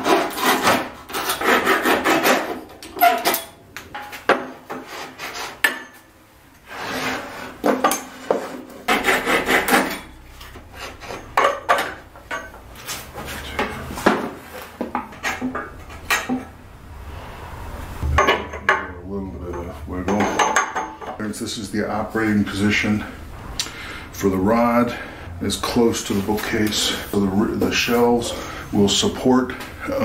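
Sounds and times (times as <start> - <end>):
rubbing strokes on plywood: 8.3 - 10.0.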